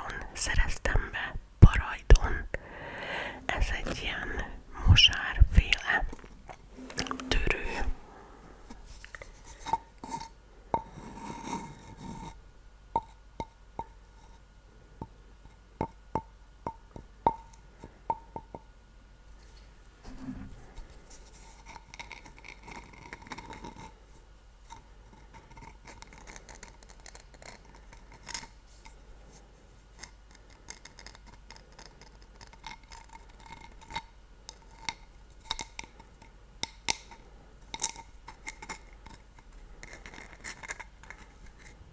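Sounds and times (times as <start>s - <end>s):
ceramic mug tapping: 10.7s - 11.0s, 13.0s - 14.0s, 15.8s - 18.7s.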